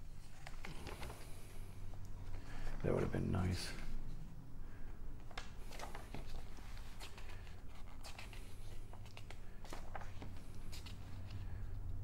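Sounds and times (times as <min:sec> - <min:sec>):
low steady hum: 0:00.0 - 0:12.0
paper rustling: 0:00.1 - 0:01.6, 0:05.3 - 0:11.6.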